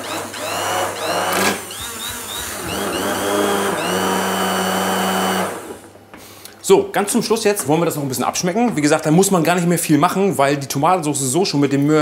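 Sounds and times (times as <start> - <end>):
immersion blender motor whine: 0.0 - 5.9.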